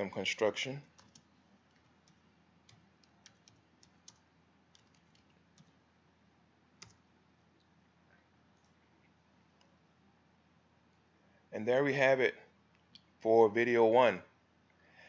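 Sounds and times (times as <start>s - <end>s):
keyboard typing clicks: 0.9s - 5.8s, 6.8s - 7.0s.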